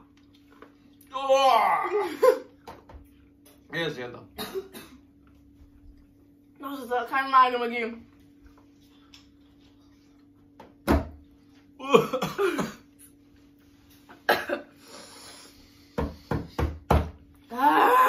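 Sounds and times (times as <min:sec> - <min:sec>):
knocks on wooden tabletop: 0:16.0 - 0:17.2
pained vocal sounds: 0:17.5 - 0:18.0.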